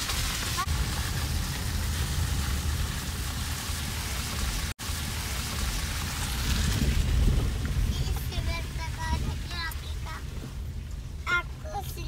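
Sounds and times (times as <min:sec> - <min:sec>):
car road rumble: 0:00.0 - 0:12.0
wind through open car window: 0:00.1 - 0:12.0.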